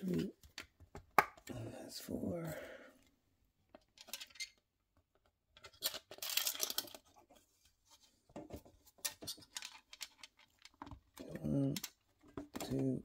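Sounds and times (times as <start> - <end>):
plastic parts clicking and scraping: 3.7 - 13.0.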